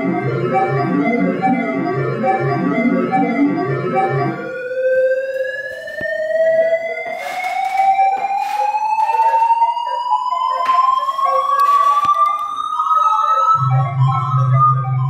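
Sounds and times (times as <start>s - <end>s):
electronic tone rising in pitch: 0.0s - 9.5s, 13.6s - 15.0s.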